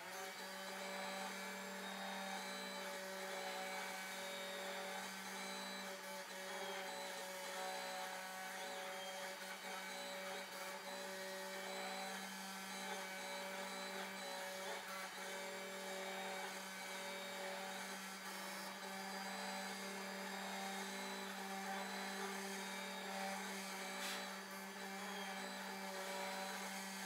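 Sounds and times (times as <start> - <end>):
cnc spindle humming: 0.0 - 27.0
bit carving wood: 0.4 - 27.0.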